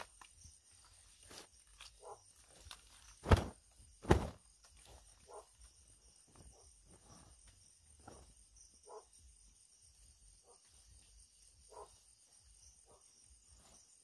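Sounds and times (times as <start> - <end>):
faint insect chirps: 0.0 - 14.0
night insects droning: 0.0 - 14.0
loud thumps: 3.2 - 4.5.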